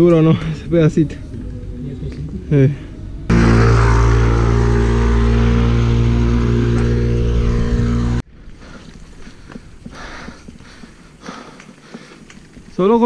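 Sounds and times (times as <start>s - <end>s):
motor scooter engine running: 3.3s - 8.2s.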